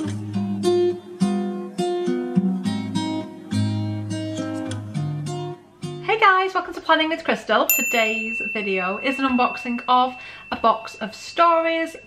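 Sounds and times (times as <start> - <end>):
plucked guitar: 0.0 - 6.0.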